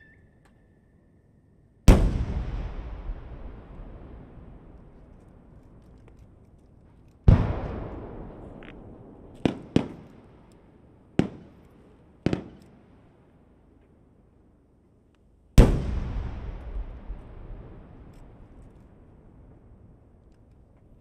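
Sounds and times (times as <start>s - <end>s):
sharp firework bangs: 1.9s - 4.7s, 15.6s - 18.1s
firework shells booming: 1.9s - 5.5s, 7.3s - 10.4s, 15.6s - 19.2s.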